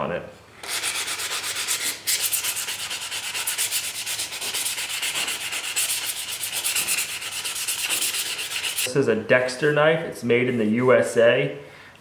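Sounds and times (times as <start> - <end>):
sandpaper rasping on wood: 0.6 - 8.9.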